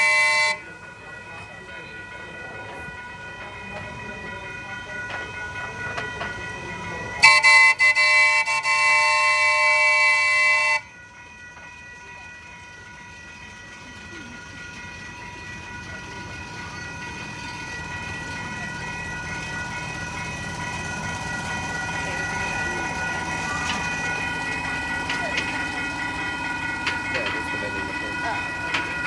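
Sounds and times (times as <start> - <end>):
train horn chord: 0.0 - 0.7, 7.2 - 10.9.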